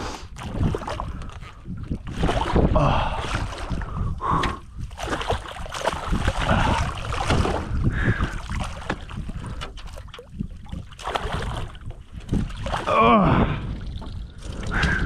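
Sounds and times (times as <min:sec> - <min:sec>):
fish splashing in water: 0:04.9 - 0:09.2, 0:09.8 - 0:12.9.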